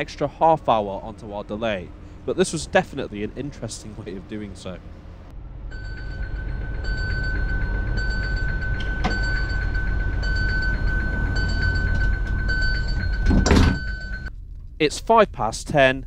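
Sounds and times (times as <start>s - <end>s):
train rumble: 0.0s - 16.0s
beeping: 1.9s - 14.3s
high electronic tone: 5.6s - 14.3s.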